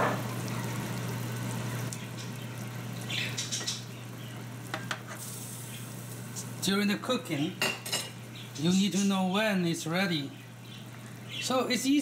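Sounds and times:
liquid simmering and bubbling: 0:00.0 - 0:06.6.

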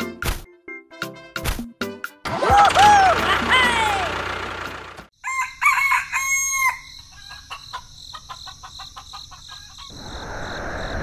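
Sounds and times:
rooster crowing: 0:05.2 - 0:07.8
chicken clucking: 0:07.1 - 0:10.0.

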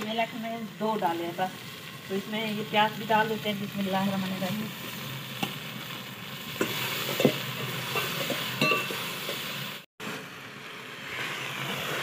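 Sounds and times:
frying hiss: 0:00.0 - 0:12.0
spoon clinking against metal pot: 0:06.6 - 0:09.0
spoon stirring vegetables in a pot: 0:06.6 - 0:09.7.

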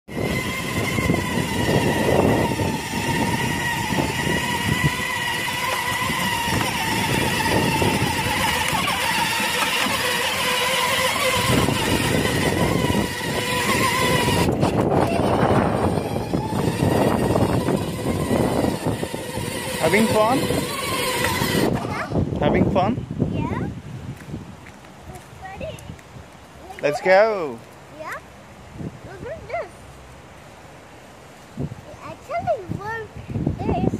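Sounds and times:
electric motor and gearbox whine: 0:00.1 - 0:22.0
plastic wheels rumbling on pavement: 0:00.1 - 0:22.1.

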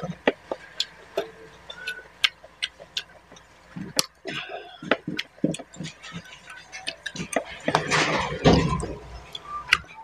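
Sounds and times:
low chewing thuds: 0:00.0 - 0:10.0
wet mouth clicks and smacks: 0:01.7 - 0:04.3.

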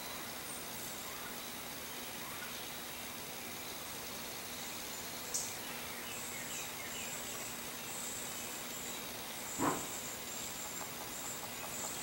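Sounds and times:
outdoor ambient hiss: 0:00.0 - 0:12.0.

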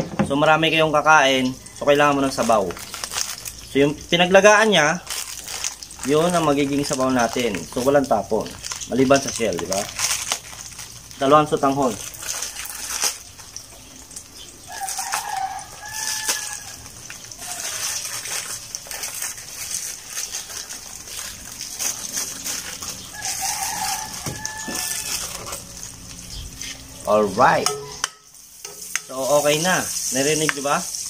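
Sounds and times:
oil hissing in a wok: 0:10.6 - 0:31.0
rooster crowing: 0:14.6 - 0:18.7, 0:22.3 - 0:26.0.

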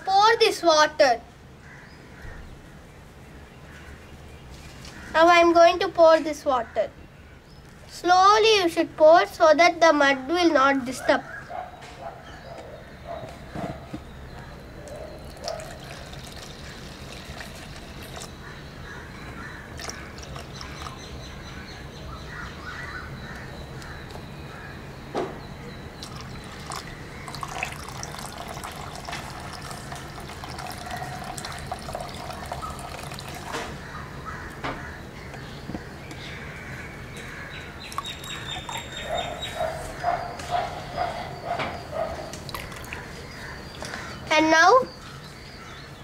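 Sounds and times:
muddy water trickling: 0:14.8 - 0:18.6, 0:19.3 - 0:21.3, 0:25.9 - 0:34.0, 0:37.6 - 0:39.8, 0:42.0 - 0:44.4.

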